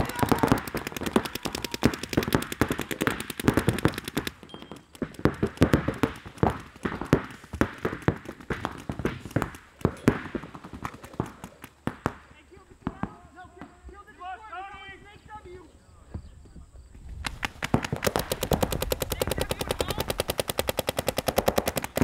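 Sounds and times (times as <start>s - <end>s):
paintball markers firing: 0.0s - 13.3s, 17.2s - 22.0s.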